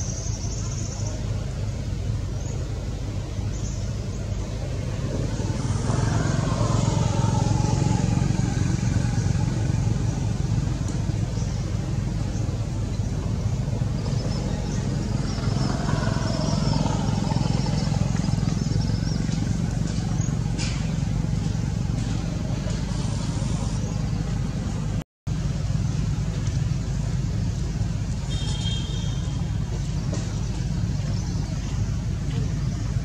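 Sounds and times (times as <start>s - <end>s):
vehicle engine rumble: 0.0s - 33.0s.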